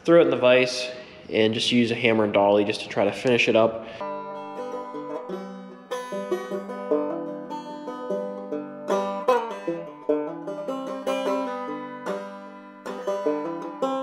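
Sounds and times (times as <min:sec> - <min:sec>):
plucked string music: 0:04.0 - 0:14.0.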